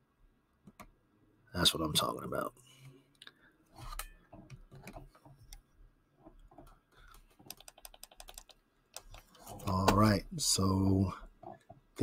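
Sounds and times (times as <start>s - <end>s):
computer keyboard and mouse clicks: 6.3s - 10.0s.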